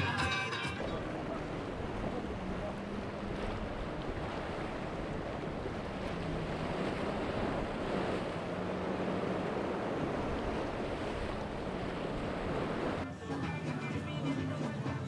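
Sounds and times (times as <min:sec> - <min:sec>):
water noise: 0:00.0 - 0:15.0
wind buffeting microphone: 0:00.8 - 0:13.0.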